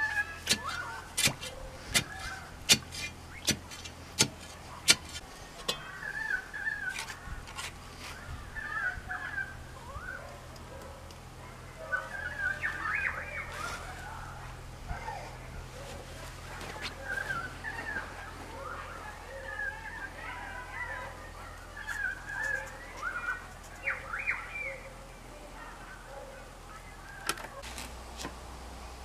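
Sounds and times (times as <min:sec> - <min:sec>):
digging bar striking soil: 0:00.0 - 0:05.9
birds chirping: 0:00.0 - 0:27.6.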